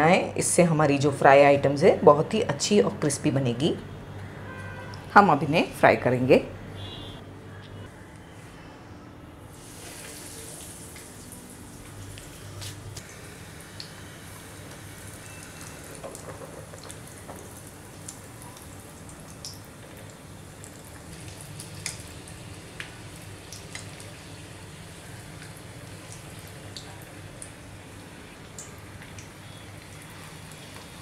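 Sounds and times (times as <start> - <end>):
deep-frying sizzle in oil: 9.5 - 31.0
oil popping and crackling: 10.0 - 31.0.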